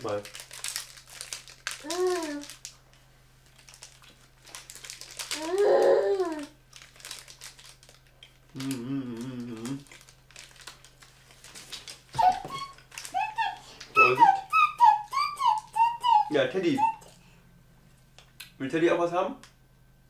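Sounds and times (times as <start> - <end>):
wrapper crinkling: 0.0 - 14.4
toddler's high wordless call: 1.8 - 2.5, 5.4 - 6.5, 12.2 - 17.1
man humming: 8.6 - 9.9, 13.9 - 14.5.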